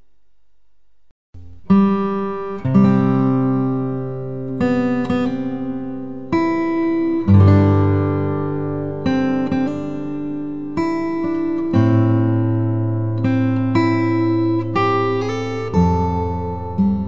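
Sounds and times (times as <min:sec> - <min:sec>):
acoustic guitar chords: 0:01.4 - 0:17.0.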